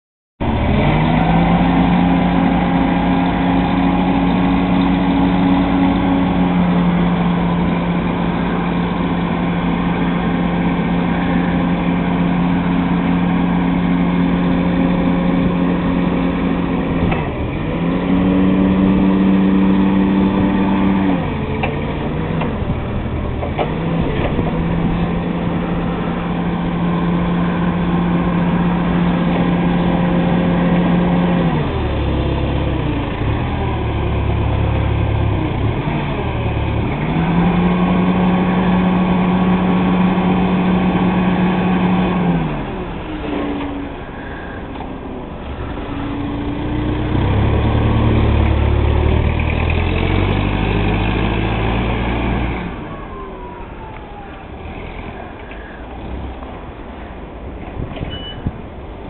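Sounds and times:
forklift engine running: 0:00.4 - 0:59.0.

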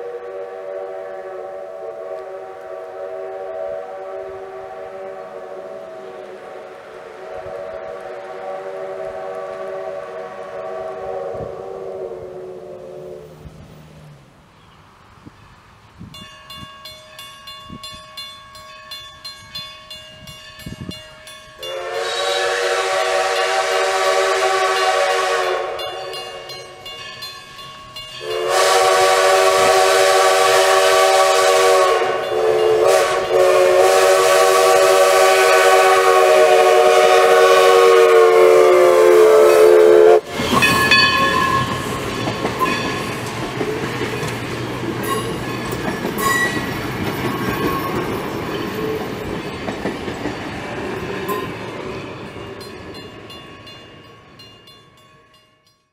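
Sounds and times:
steam locomotive chime whistle: 0:00.0 - 0:13.4, 0:16.2 - 0:43.4, 0:45.0 - 0:49.7, 0:51.0 - 0:55.9
crossing bell ringing: 0:16.0 - 0:22.4, 0:24.7 - 0:29.3, 0:32.0 - 0:33.9, 0:39.5 - 0:55.9
train wheels clicking over rail joints: 0:40.2 - 0:54.1.

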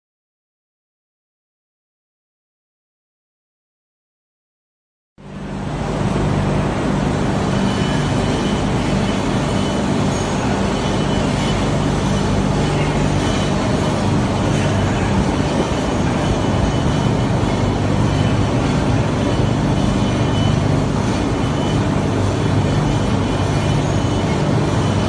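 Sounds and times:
low hum: 0:05.2 - 0:25.0
machine mechanical drone: 0:05.2 - 0:25.0.

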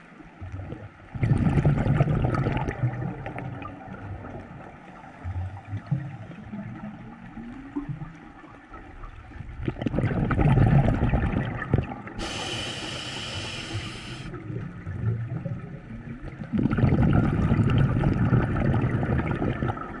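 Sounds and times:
exhaled bubbles underwater: 0:00.0 - 0:20.0
hissing regulator inhalation: 0:12.2 - 0:14.3.

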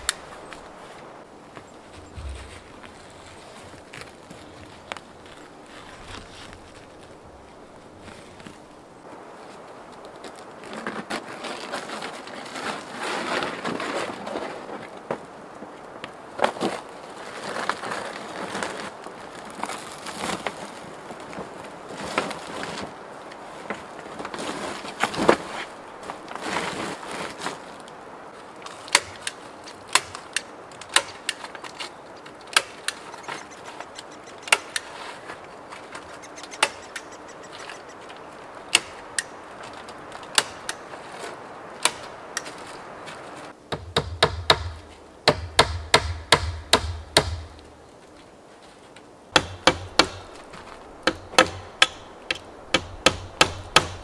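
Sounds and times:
sharp wooden knocks: 0:01.9 - 0:03.2, 0:35.9 - 0:37.8, 0:43.7 - 0:47.6, 0:49.4 - 0:54.0.

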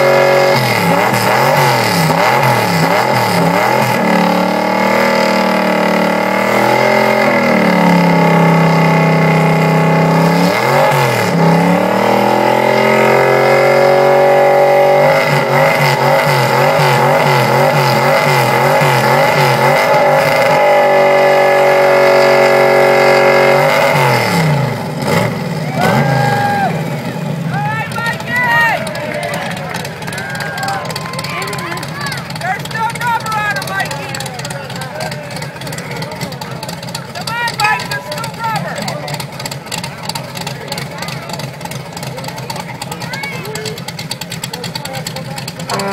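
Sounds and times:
truck engine revving high: 0:00.0 - 0:45.9
tyres spinning on pavement: 0:24.7 - 0:45.9.

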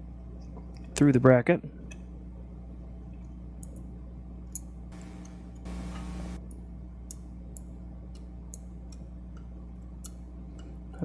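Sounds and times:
low hum: 0:02.0 - 0:11.0.

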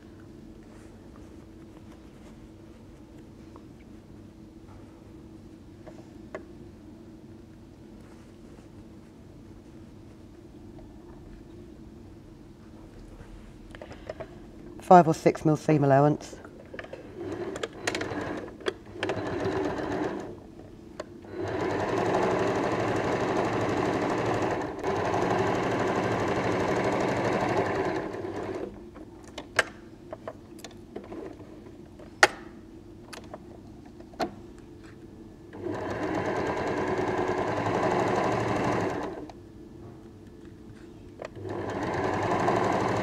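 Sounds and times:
sewing machine stitching: 0:17.2 - 0:20.4, 0:21.3 - 0:28.7, 0:35.6 - 0:39.3, 0:41.3 - 0:43.0.

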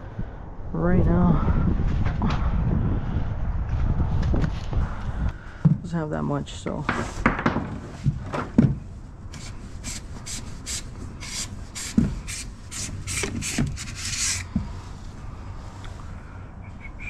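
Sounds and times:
grease gun rasping strokes: 0:09.4 - 0:14.6.

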